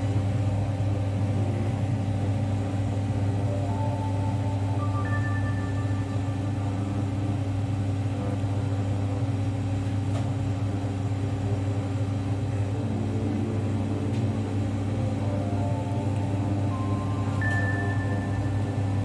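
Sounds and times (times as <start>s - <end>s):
steady low hum: 0.0s - 19.0s
soft held background music notes: 2.9s - 8.5s, 12.3s - 19.0s.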